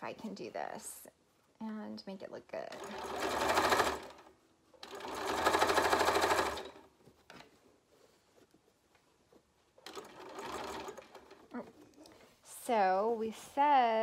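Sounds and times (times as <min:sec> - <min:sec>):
sewing machine stitching: 0:02.7 - 0:06.9, 0:09.8 - 0:11.5.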